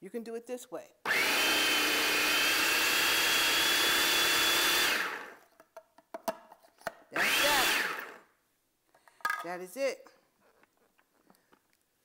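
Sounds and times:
food processor motor whining: 0:01.1 - 0:05.4, 0:07.2 - 0:08.2.

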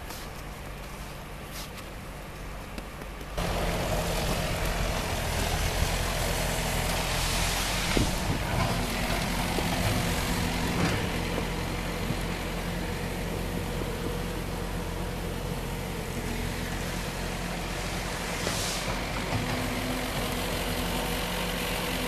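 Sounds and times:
tractor engine running: 0:00.0 - 0:22.0.

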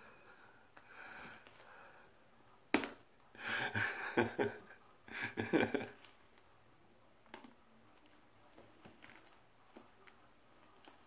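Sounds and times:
breathing through cream: 0:00.0 - 0:02.2
muffled laughter: 0:03.4 - 0:06.0.

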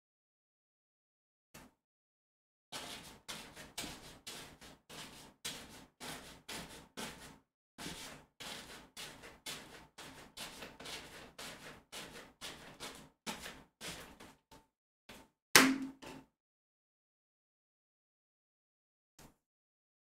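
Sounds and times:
paintbrush dabbing on canvas: 0:02.8 - 0:14.4.

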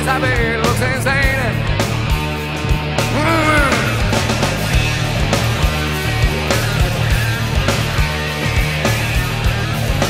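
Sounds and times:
grunge rock band playing: 0:00.0 - 0:10.0
man singing: 0:03.1 - 0:04.3.

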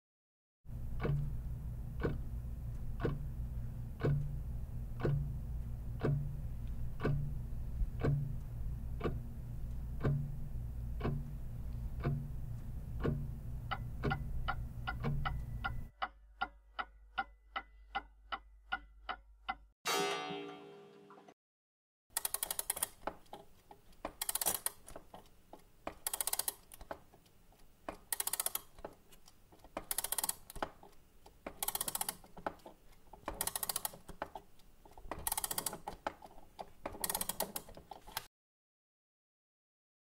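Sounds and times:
steady low hum: 0:00.7 - 0:15.9
clock ticking: 0:00.9 - 0:01.3, 0:01.9 - 0:04.4, 0:05.0 - 0:19.7, 0:29.6 - 0:36.1.

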